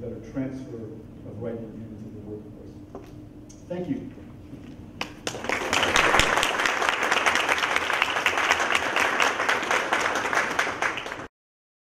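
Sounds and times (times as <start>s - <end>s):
audience applauding: 5.0s - 11.3s.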